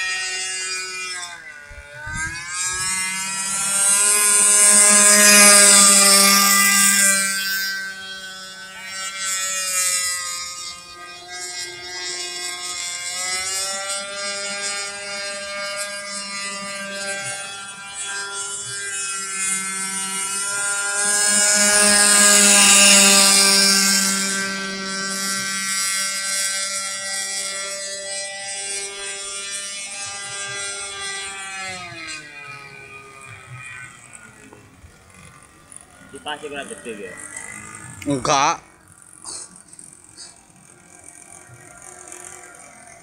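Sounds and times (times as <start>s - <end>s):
two-stroke boat engine high revs: 0.0s - 43.0s.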